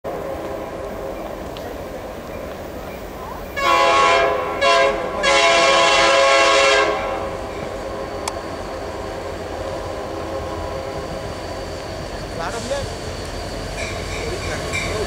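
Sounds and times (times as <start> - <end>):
freight train rumbling: 0.0 - 15.0
locomotive air horn blasts: 3.6 - 7.3.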